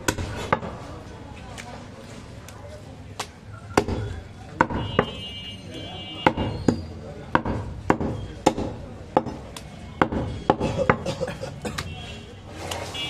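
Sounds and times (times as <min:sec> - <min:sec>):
cleaver chopping on wooden block: 0:03.7 - 0:05.2, 0:06.2 - 0:11.0.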